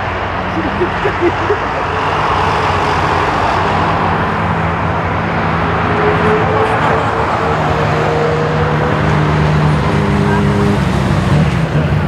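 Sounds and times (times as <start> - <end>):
higher engine hum: 0.0 - 12.0
jet engines roaring: 0.0 - 12.0.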